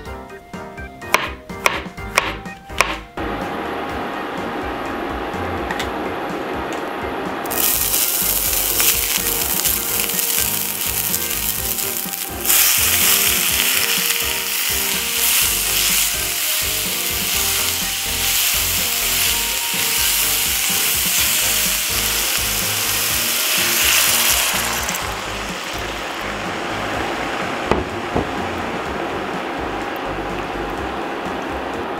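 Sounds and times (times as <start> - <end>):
vegetables sizzling in oil: 7.4 - 29.4
water poured into pan: 7.5 - 17.7, 20.6 - 26.4.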